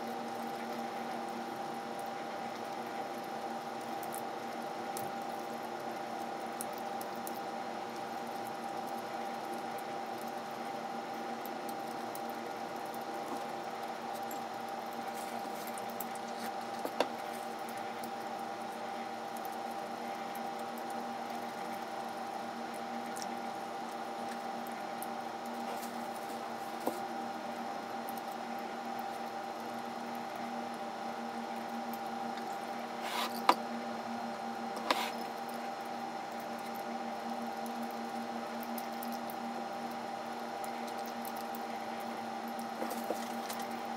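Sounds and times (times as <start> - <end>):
background hum with held tones: 0.0 - 43.9.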